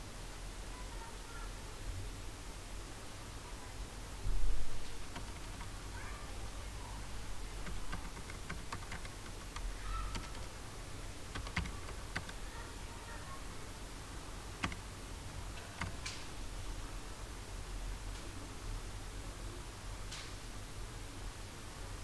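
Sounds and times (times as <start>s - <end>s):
keyboard typing: 4.9s - 5.9s, 7.5s - 10.6s, 11.2s - 12.5s, 14.6s - 14.9s, 15.6s - 16.3s.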